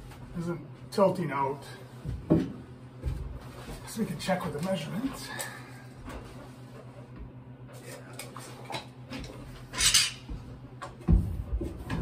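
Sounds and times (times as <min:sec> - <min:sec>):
metal clamps clinking and knocking: 0:09.7 - 0:10.3.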